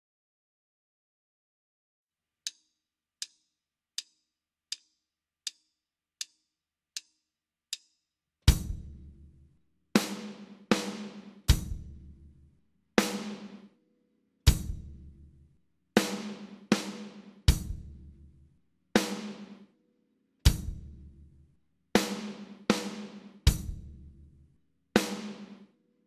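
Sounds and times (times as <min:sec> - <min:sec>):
drum and cymbal strokes: 0:08.5 - 0:09.0, 0:10.0 - 0:12.0, 0:13.0 - 0:13.6, 0:14.5 - 0:14.9, 0:16.0 - 0:17.9, 0:19.0 - 0:19.6, 0:20.5 - 0:21.0, 0:22.0 - 0:24.0, 0:25.0 - 0:25.6.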